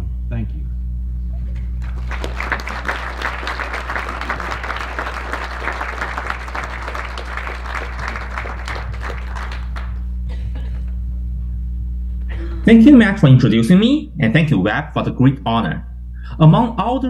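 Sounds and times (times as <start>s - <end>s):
steady low hum: 0.0s - 17.0s
audience applauding: 1.8s - 10.1s.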